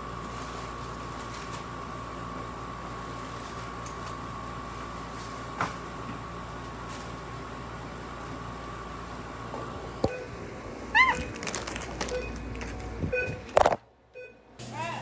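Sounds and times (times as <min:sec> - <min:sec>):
rustling of chip bags and boxes: 0:00.0 - 0:05.6, 0:06.6 - 0:07.3, 0:11.0 - 0:13.8
machine hum: 0:00.0 - 0:15.0.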